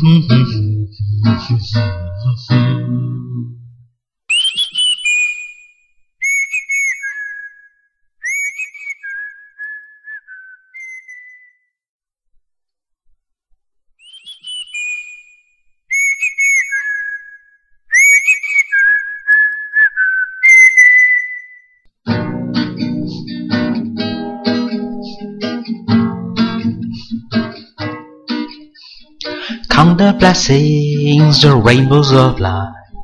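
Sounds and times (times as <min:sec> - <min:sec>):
strummed guitar: 0:00.0 - 0:03.5, 0:22.0 - 0:33.0
whistled melody: 0:04.3 - 0:11.8, 0:14.0 - 0:21.8.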